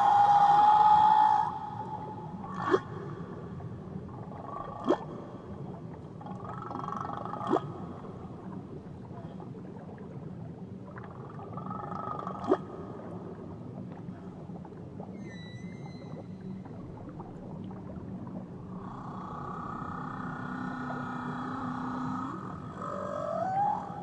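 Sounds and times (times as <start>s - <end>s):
whale song: 0.0s - 24.0s.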